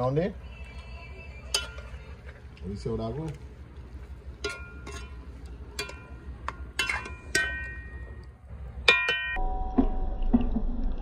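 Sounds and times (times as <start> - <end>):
metal spoon clinking on pot: 1.5 - 2.0, 4.4 - 8.2.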